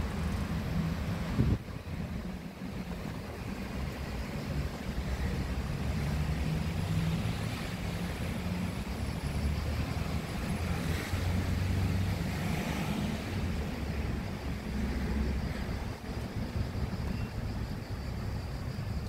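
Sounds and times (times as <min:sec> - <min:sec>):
low rumble of car traffic: 0:00.0 - 0:19.0.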